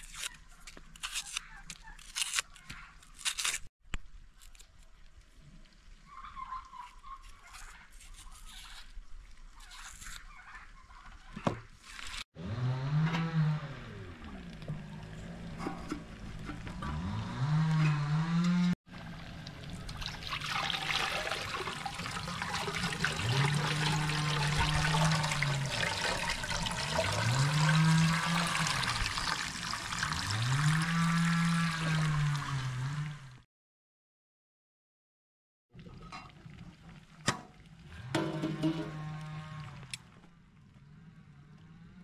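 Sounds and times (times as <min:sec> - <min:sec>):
water pouring and gurgling: 0:18.9 - 0:33.4, 0:35.7 - 0:40.2.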